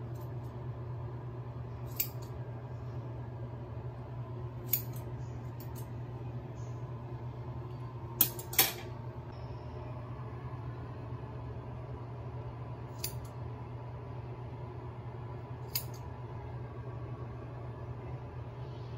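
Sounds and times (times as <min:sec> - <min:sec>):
steady low hum: 0:00.0 - 0:18.9
scissors snipping hair: 0:01.9 - 0:02.3, 0:04.7 - 0:05.8, 0:13.0 - 0:13.3, 0:15.7 - 0:16.0.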